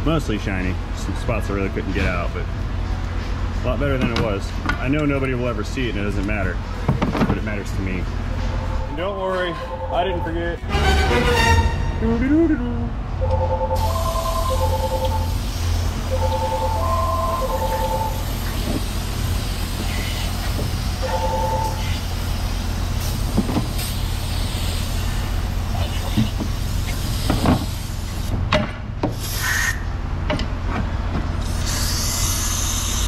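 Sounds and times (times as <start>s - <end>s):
parts washer pump hum: 12.3s - 28.2s
spray hissing: 18.1s - 20.8s, 21.8s - 28.3s.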